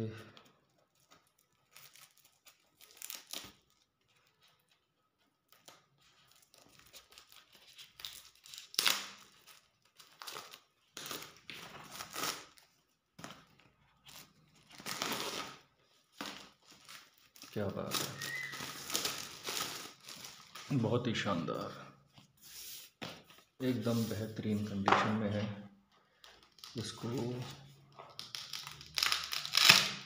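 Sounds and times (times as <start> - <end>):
plastic wrap crinkling and tearing: 0.4 - 21.2, 28.1 - 30.0.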